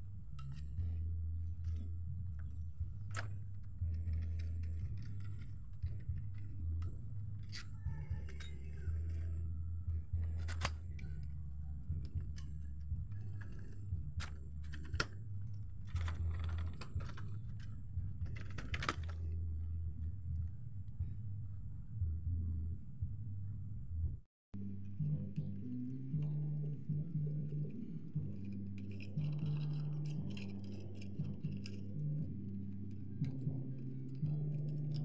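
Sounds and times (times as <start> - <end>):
low steady hum: 0.0 - 35.0.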